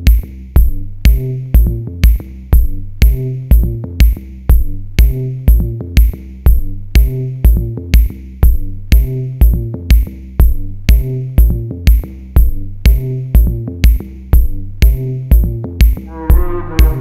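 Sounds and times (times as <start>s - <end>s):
drum machine beat: 0.0s - 17.0s
synth notes: 16.1s - 17.0s.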